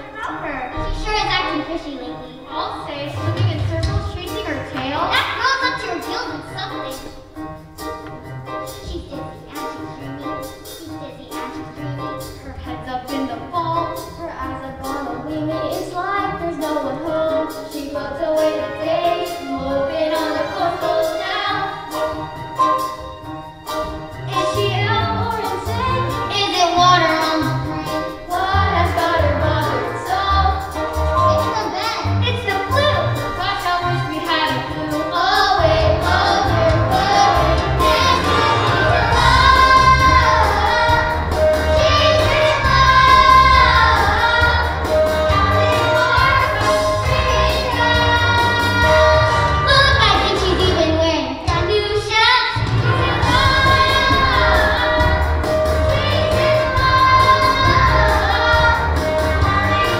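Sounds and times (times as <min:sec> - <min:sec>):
instrumental accompaniment: 0:00.0 - 0:59.9
children singing: 0:11.4 - 0:22.4, 0:24.3 - 0:59.9.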